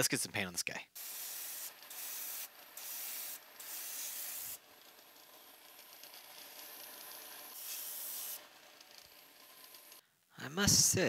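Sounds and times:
airbrush spraying bursts: 0.9s - 4.6s, 6.8s - 8.5s.

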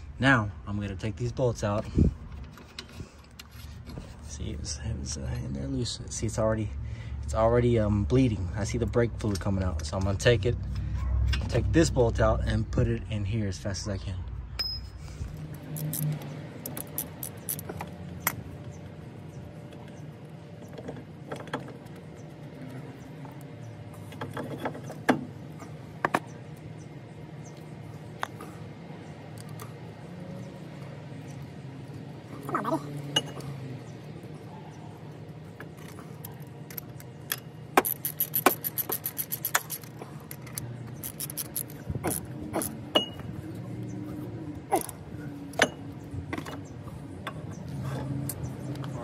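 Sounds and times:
metallic clicks of wrench and bolt: 15.8s - 18.4s, 36.2s - 43.1s
metal tools clinking: 35.8s - 43.3s.

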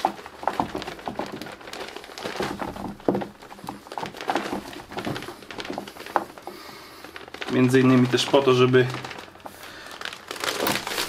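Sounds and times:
soil rustling and crinkling: 0.0s - 11.0s.

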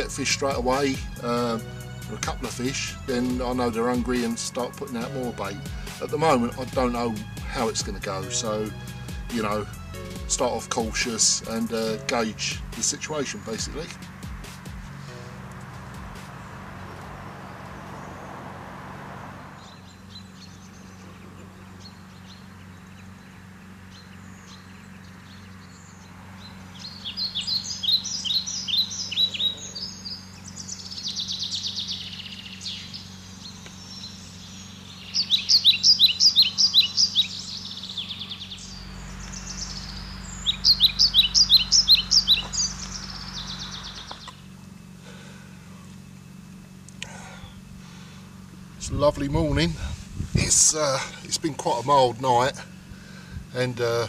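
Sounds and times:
songbird singing: 0.0s - 54.0s
faint steady low hum: 14.9s - 54.0s.

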